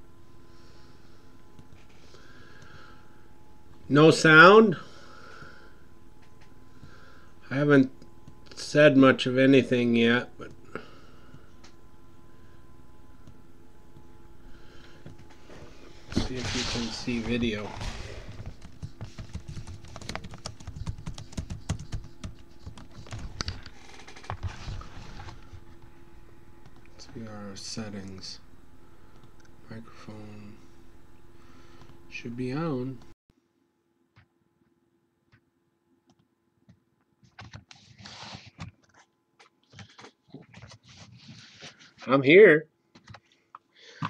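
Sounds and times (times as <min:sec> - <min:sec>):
faint steady hum: 0:00.0 - 0:44.0
laptop keyboard typing: 0:18.4 - 0:24.5.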